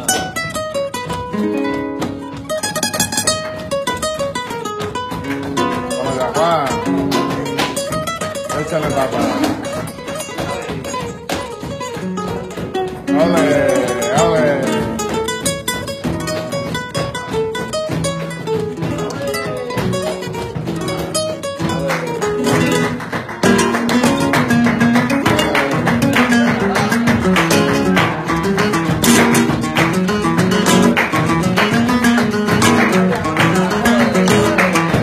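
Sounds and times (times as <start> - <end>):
flamenco guitar playing: 0.0 - 35.0.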